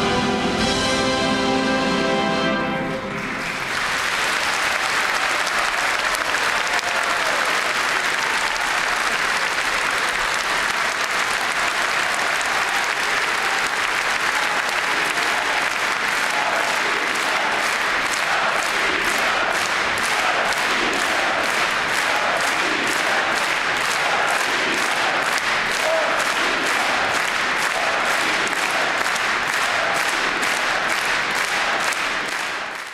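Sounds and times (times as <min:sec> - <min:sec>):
orchestral music: 0:00.0 - 0:04.2
audience applause: 0:03.0 - 0:32.9
audience singing along: 0:14.7 - 0:32.4.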